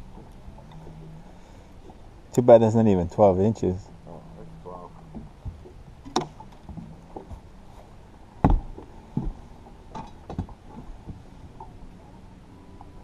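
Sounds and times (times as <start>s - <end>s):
gear knocking on boat deck: 8.4s - 11.2s.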